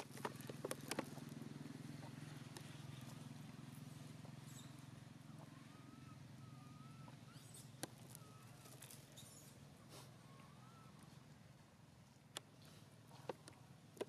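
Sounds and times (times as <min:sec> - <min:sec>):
steady low hum: 0:00.0 - 0:14.0
thin wavering whistle-like tones: 0:04.4 - 0:09.6
dry leaves rustling: 0:08.0 - 0:09.4.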